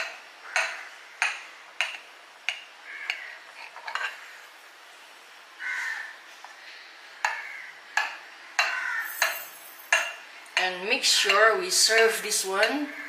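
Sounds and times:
utensils knocking against dishware: 8.0 - 11.4.

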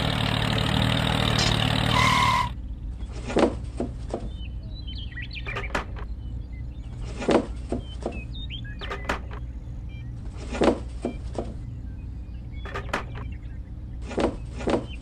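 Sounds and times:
steady low hum: 2.5 - 15.0
faint bird chirps: 4.0 - 15.0.

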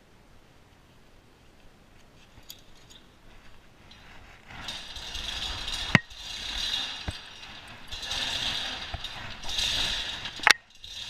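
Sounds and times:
chain clattering through hoist: 2.4 - 11.0.

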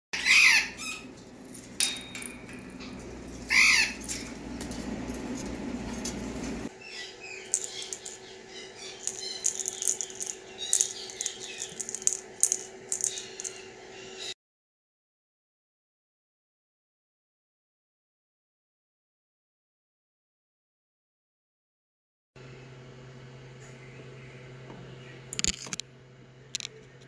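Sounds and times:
parrot squawking: 0.2 - 1.2, 3.4 - 4.3
plastic rattle toy shaken: 7.5 - 8.2, 9.0 - 13.6.

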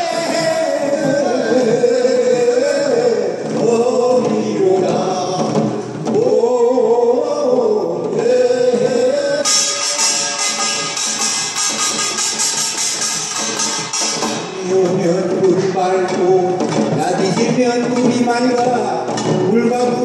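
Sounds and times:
percussion: 0.0 - 7.3, 8.0 - 20.0
man singing into a microphone: 0.0 - 9.8, 14.6 - 20.0.

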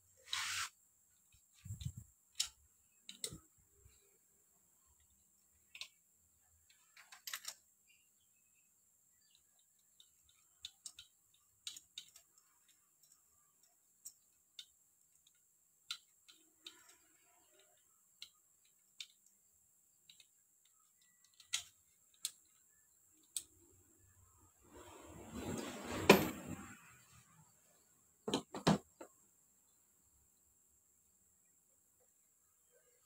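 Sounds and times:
tools clicking and tapping: 1.2 - 3.5, 5.0 - 8.0, 9.2 - 23.6.

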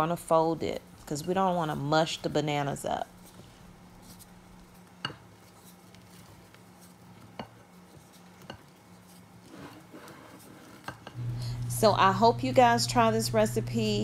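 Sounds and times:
spatula stirring pudding: 0.1 - 11.2.

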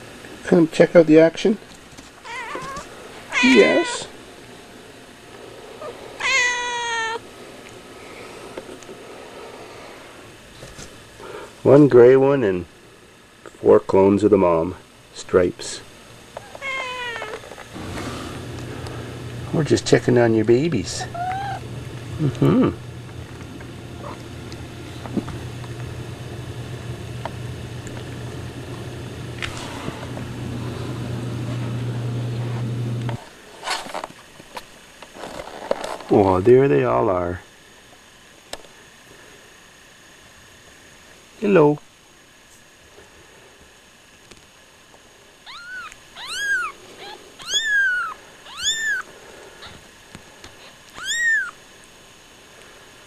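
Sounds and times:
kitten mewing: 2.2 - 4.1, 5.8 - 7.2, 16.4 - 17.4, 21.0 - 22.8, 24.0 - 24.2, 45.4 - 49.8, 50.9 - 51.6.

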